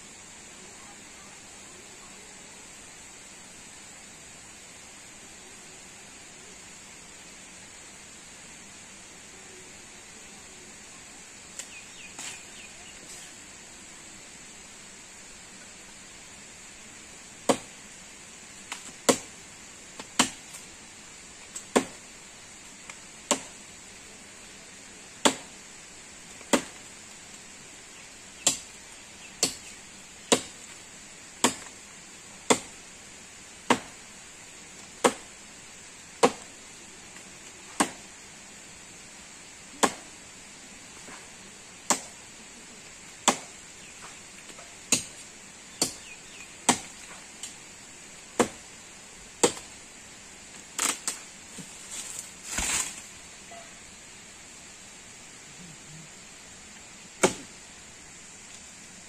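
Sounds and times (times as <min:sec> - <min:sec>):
blade chopping into branch: 0:18.7 - 0:19.3, 0:20.0 - 0:20.6, 0:23.3 - 0:23.6, 0:25.2 - 0:25.5, 0:26.4 - 0:26.8, 0:31.4 - 0:31.8, 0:33.7 - 0:34.0, 0:36.2 - 0:36.5, 0:37.8 - 0:38.0, 0:39.8 - 0:40.1, 0:41.9 - 0:42.1, 0:43.2 - 0:43.5, 0:46.7 - 0:47.5, 0:48.4 - 0:48.6, 0:49.4 - 0:49.7, 0:50.8 - 0:53.1, 0:57.2 - 0:57.5.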